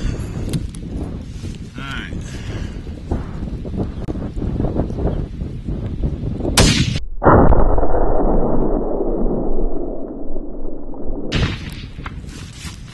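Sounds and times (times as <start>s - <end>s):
wind gust on microphone: 0.0s - 12.9s
rifle shot boom: 6.5s - 12.2s.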